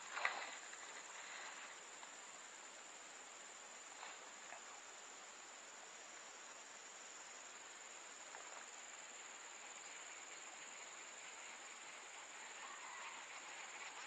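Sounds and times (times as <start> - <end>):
faint hiss: 0.0 - 14.0
insects droning: 0.0 - 14.0.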